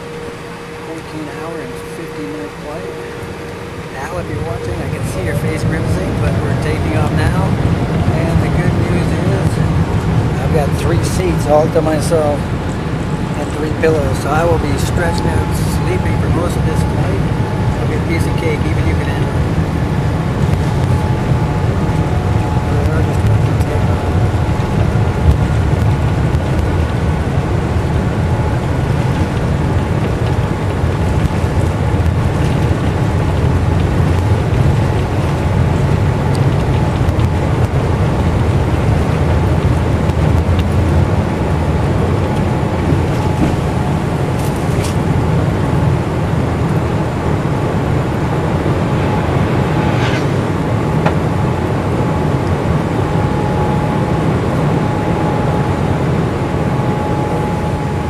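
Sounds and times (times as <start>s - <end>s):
jet engines rumbling: 0.0s - 58.0s.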